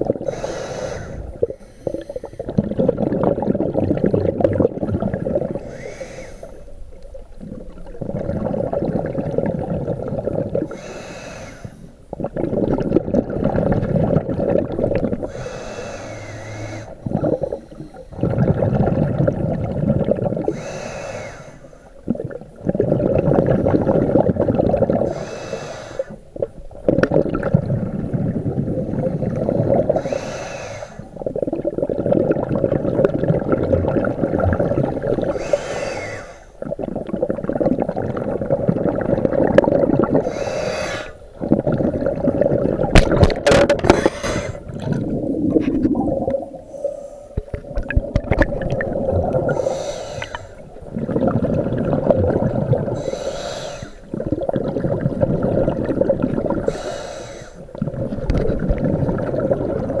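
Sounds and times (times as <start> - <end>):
bubbling exhale underwater: 0.0 - 60.0
hissing regulator inhale: 0.2 - 2.6, 5.6 - 6.8, 10.7 - 12.0, 15.2 - 18.4, 20.4 - 22.0, 25.0 - 26.3, 28.9 - 31.2, 35.3 - 36.6, 40.2 - 41.3, 43.8 - 44.8, 46.5 - 47.6, 49.4 - 50.8, 52.9 - 54.2, 56.6 - 57.7.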